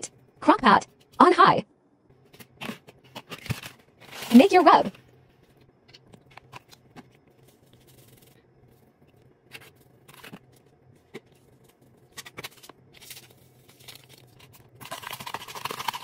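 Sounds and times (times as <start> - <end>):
low steady hum: 0.0 - 16.0
spice containers clicking and rustling: 12.1 - 16.0.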